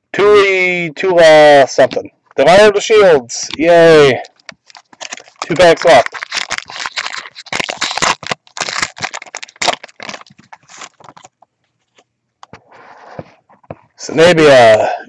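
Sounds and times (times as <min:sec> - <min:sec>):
wrapper crinkling: 0:04.2 - 0:12.1
cards being shuffled: 0:04.2 - 0:13.9.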